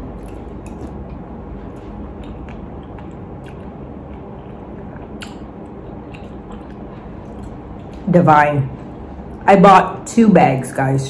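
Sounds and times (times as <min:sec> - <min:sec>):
person chewing softly: 0:00.0 - 0:08.1.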